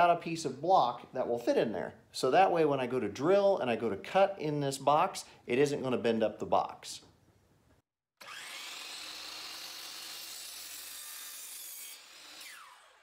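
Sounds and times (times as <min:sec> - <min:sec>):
miter saw cutting wood: 0:08.2 - 0:13.0.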